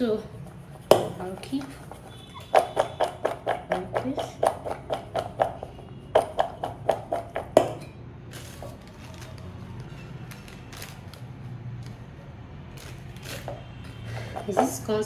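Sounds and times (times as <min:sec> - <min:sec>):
potato strips knocking in steel bowl: 0:00.9 - 0:07.9
plastic bag rustling: 0:08.3 - 0:11.4.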